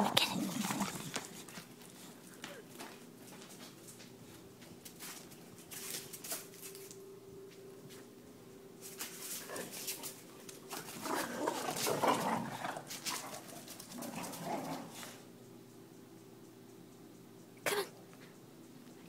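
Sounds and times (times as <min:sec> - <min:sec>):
dogs scuffling: 0:00.1 - 0:08.1, 0:08.8 - 0:15.2.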